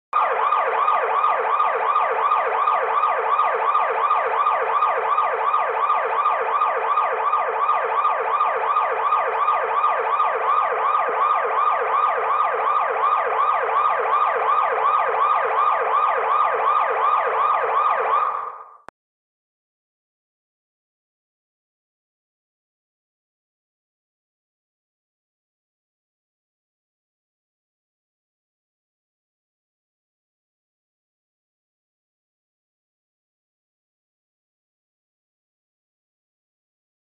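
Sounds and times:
police siren yelping: 0:00.2 - 0:18.9.

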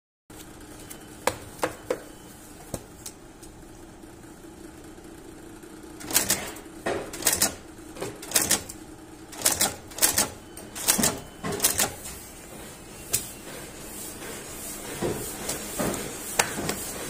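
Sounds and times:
wire stitching machine humming: 0:04.7 - 0:12.2
machine sharp clacks: 0:06.0 - 0:07.6, 0:08.2 - 0:12.0.

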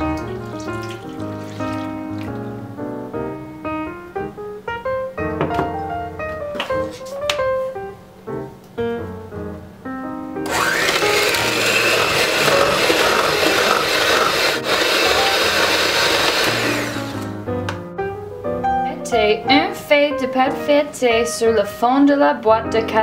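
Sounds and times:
plucked background music: 0:00.0 - 0:23.0
electric hand mixer whipping: 0:10.5 - 0:17.4.

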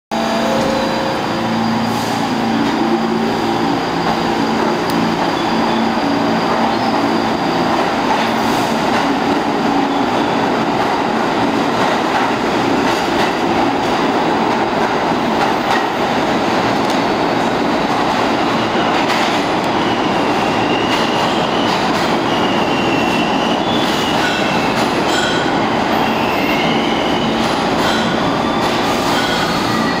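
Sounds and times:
subway train motors whining: 0:00.1 - 0:30.0
rumble of wheels on rail: 0:00.2 - 0:30.0
high wavering wheel squeal: 0:19.8 - 0:30.0.

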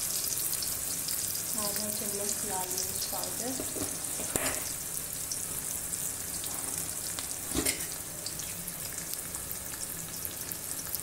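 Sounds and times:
onion frying in hot oil: 0:00.0 - 0:11.0.

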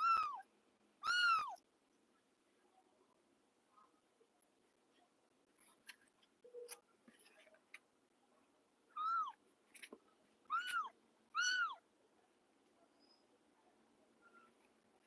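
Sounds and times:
faint clicks and scratches: 0:03.8 - 0:08.6, 0:09.3 - 0:11.0, 0:13.6 - 0:15.0.

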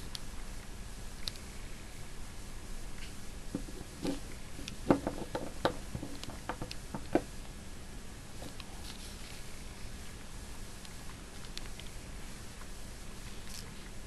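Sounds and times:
small objects clicking on tabletop: 0:03.6 - 0:07.3.

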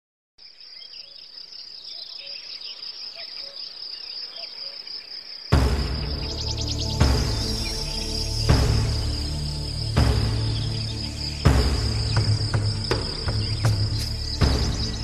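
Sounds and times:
crickets chirring: 0:00.4 - 0:15.0
faint chirps and calls: 0:00.5 - 0:15.0
music on a deep low chord: 0:05.6 - 0:15.0.

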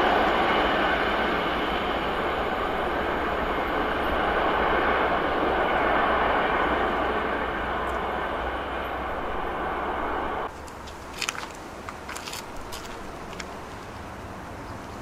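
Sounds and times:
train passing: 0:00.0 - 0:15.0.

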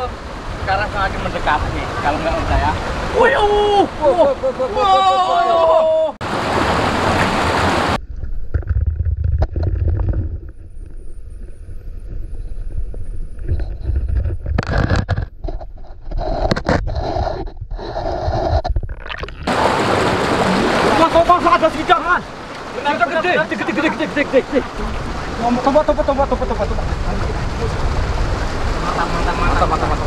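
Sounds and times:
loud rush of water: 0:00.0 - 0:08.0, 0:19.4 - 0:30.0
splashing water: 0:00.0 - 0:11.5, 0:18.9 - 0:30.0
knocks on rocks underwater: 0:08.5 - 0:10.6.

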